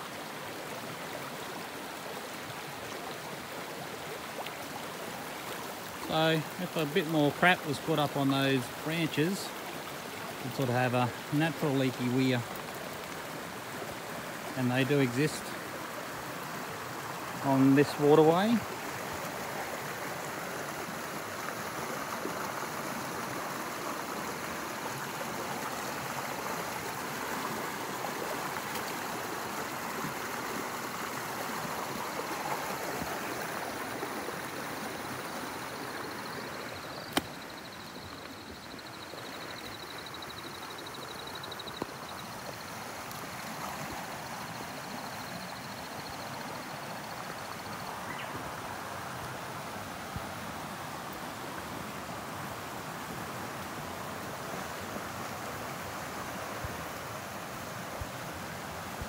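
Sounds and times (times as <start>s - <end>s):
creek water running: 0.0s - 59.0s
sharp snap: 37.1s - 37.3s.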